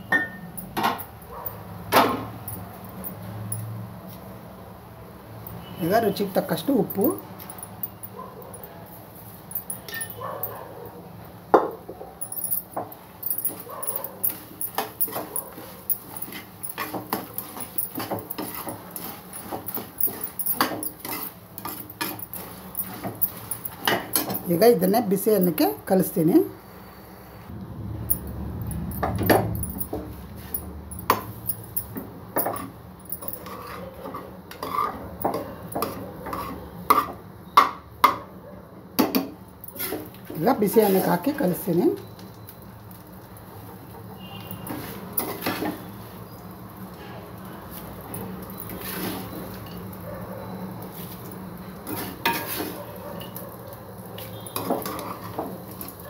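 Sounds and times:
spoon stirring in a pan: 13.0 - 25.6, 33.4 - 37.2, 39.0 - 41.7, 43.6 - 46.1, 50.9 - 56.0.

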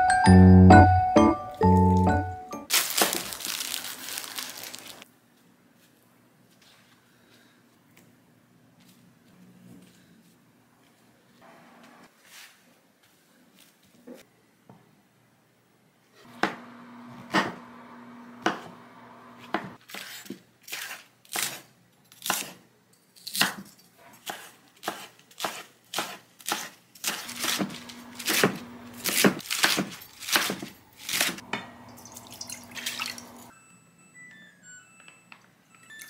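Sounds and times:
knife chopping on wooden board: 17.3 - 17.6, 18.4 - 18.7, 19.4 - 19.8, 24.2 - 31.5.

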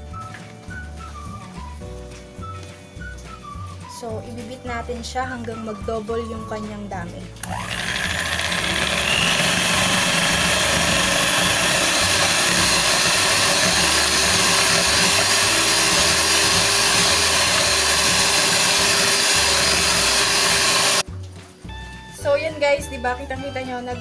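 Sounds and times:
electric hand mixer whipping cream: 7.4 - 21.0.

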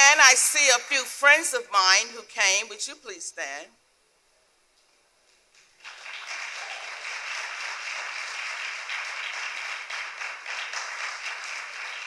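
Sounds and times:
congregation applauding: 5.6 - 12.0.

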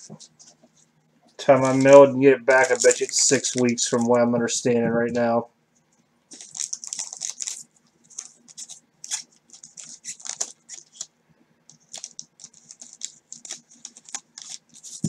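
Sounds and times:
wrapper crinkling: 1.4 - 4.2, 6.3 - 11.1, 11.7 - 15.0.

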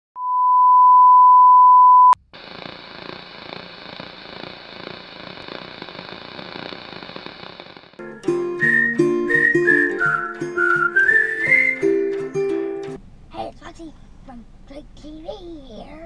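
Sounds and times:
television static hiss: 2.2 - 8.0.

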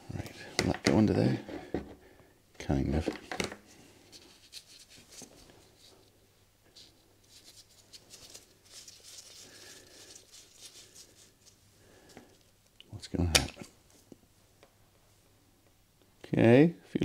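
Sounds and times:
gloved hands rustling: 3.0 - 14.2.

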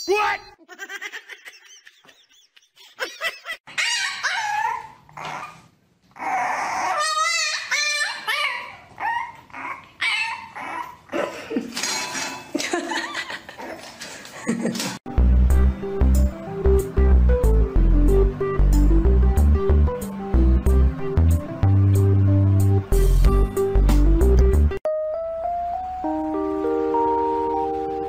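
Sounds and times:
puppy whining and yapping: 3.7 - 11.2.

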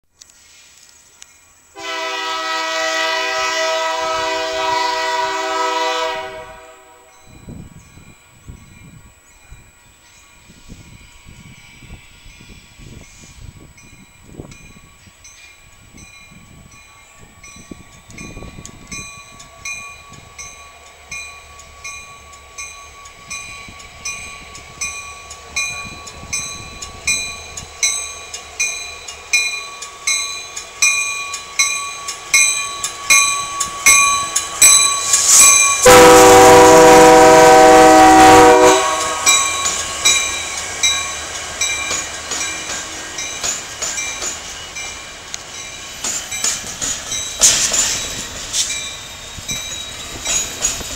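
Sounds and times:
locomotive horn blast: 1.8 - 7.1, 35.7 - 39.7
locomotive bell ringing: 13.7 - 50.9.

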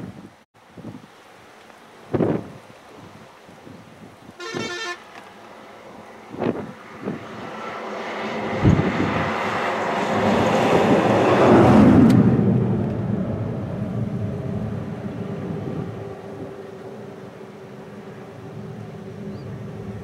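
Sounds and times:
vehicle passing by: 4.6 - 20.0.

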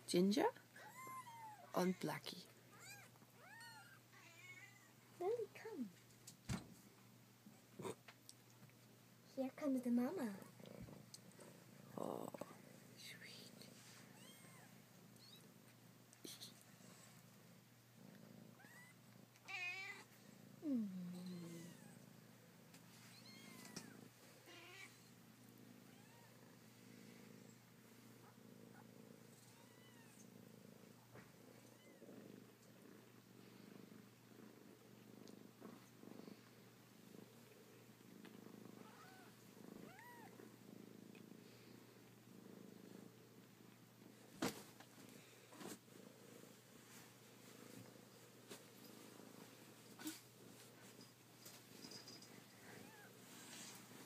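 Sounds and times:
cat purring: 6.8 - 54.0
cat meowing: 18.6 - 20.0, 23.2 - 25.0, 29.6 - 30.2, 38.8 - 39.3.

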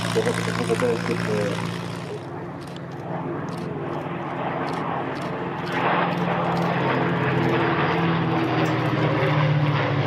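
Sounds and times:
propeller planes droning past: 0.0 - 10.0.

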